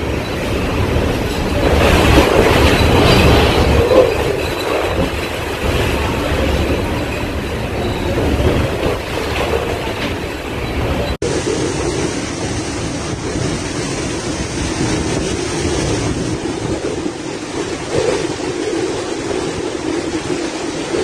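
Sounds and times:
strong wind gusting: 0.0 - 21.0
wind buffeting microphone: 0.0 - 21.0.

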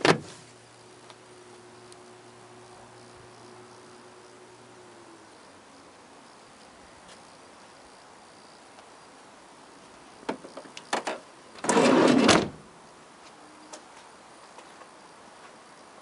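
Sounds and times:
sliding door rushing shut: 11.6 - 12.6.

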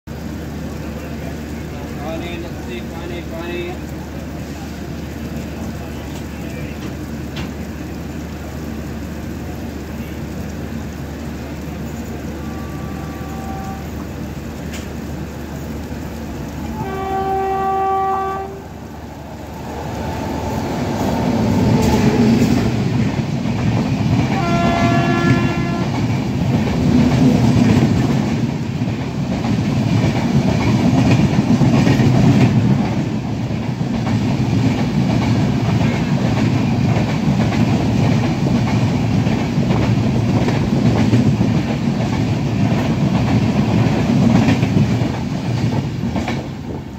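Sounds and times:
train coaches rumbling past: 0.1 - 46.9
train horn blasts: 12.2 - 14.1, 16.6 - 18.9, 24.3 - 26.0.

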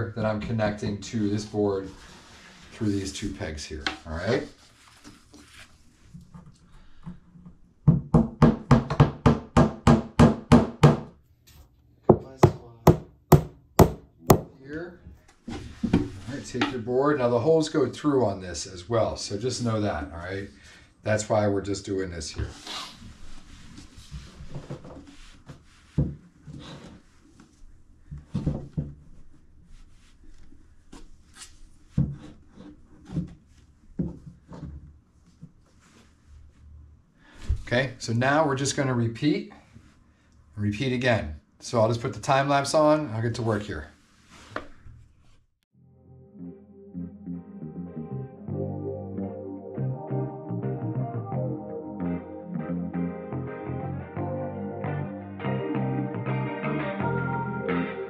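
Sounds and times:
hammer tapping wooden pegs: 12.1 - 14.5.

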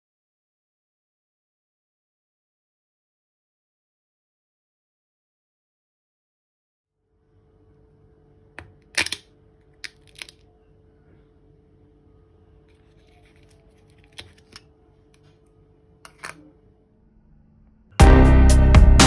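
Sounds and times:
faint steady hum: 7.1 - 18.0
plastic packaging clicks and crackles: 9.8 - 10.4.

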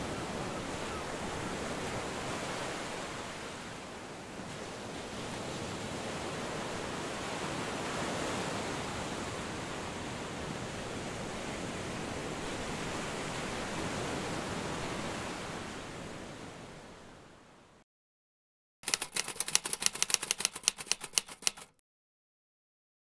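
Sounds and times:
ocean waves breaking: 0.0 - 17.3.

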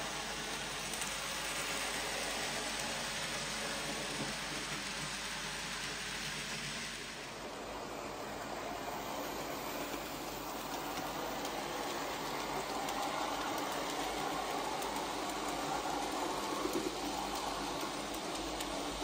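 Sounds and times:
model train wheels rattling: 8.6 - 19.0.

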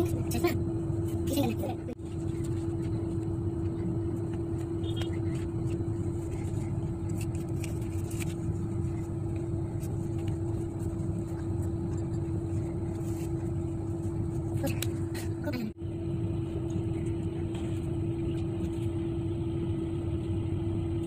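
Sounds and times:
steady machine hum: 0.0 - 21.0.

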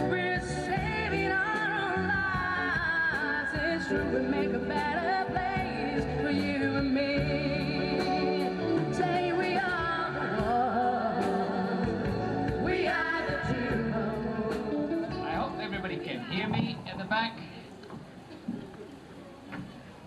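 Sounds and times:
group of singers singing: 0.0 - 15.3.

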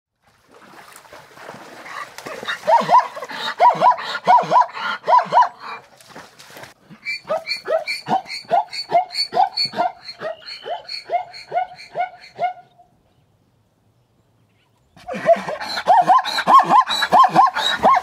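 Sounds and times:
zebra barking call: 7.1 - 12.8, 15.0 - 18.0.

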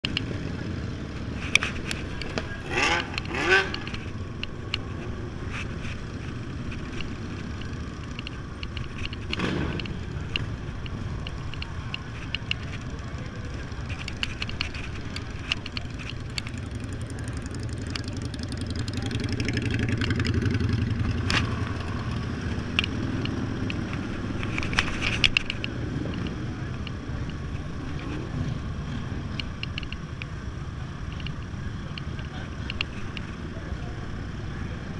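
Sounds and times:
other motorcycle engines: 0.0 - 34.9
loud engine drone: 0.1 - 4.1
scooter engine running: 0.1 - 29.9.

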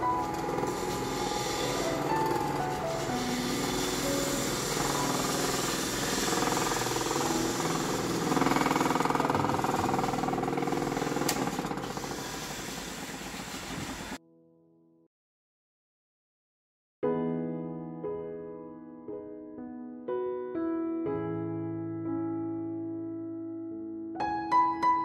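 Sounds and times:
lathe gouge chattering on wood: 0.0 - 14.1.

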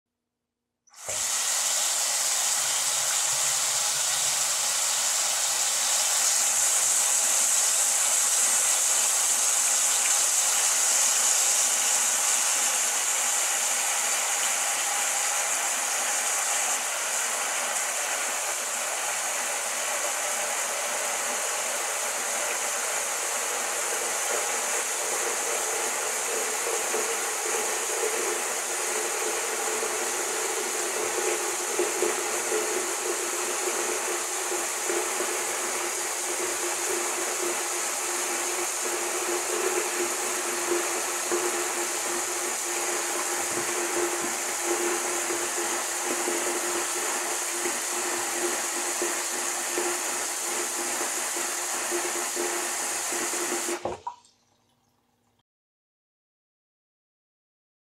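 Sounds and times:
water faucet running: 0.9 - 55.0.

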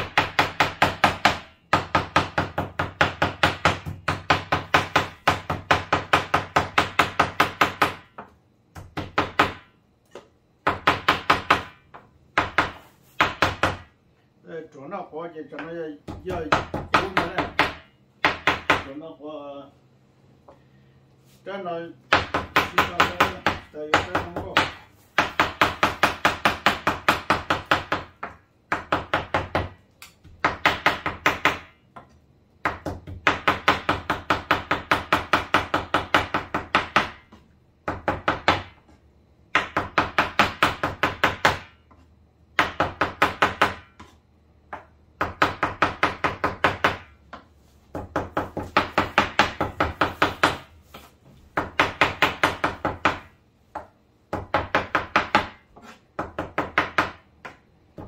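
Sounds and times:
knife chopping on cutting board: 22.1 - 58.0.

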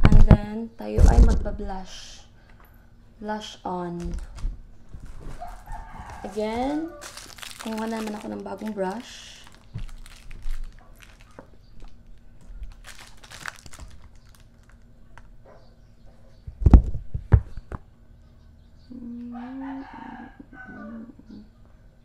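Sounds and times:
rooster crowing: 5.3 - 7.4, 19.3 - 21.2.

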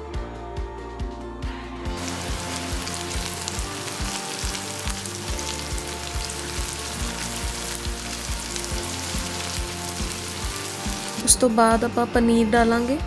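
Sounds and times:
background music with beat: 0.0 - 13.0
vegetables sizzling in oil: 2.0 - 11.4.

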